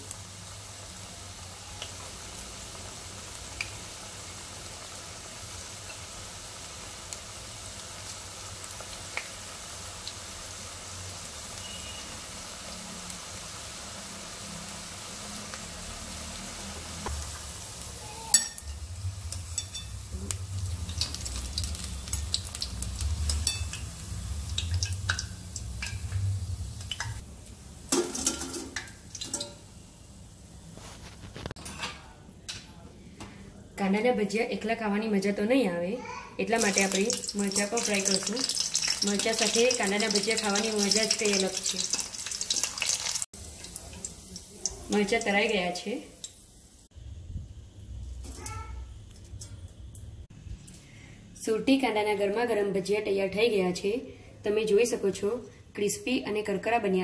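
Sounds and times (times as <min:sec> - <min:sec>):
food sizzling in hot oil: 0:00.0 - 0:31.5, 0:36.4 - 0:50.3
spoon clinking against steel pan: 0:18.3 - 0:18.8, 0:19.5 - 0:20.0, 0:23.3 - 0:23.8.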